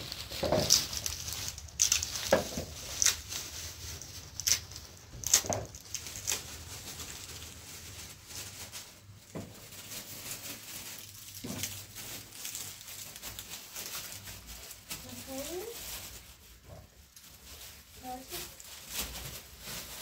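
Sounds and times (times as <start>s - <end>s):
wrappers crinkling and rustling: 0.0s - 20.0s.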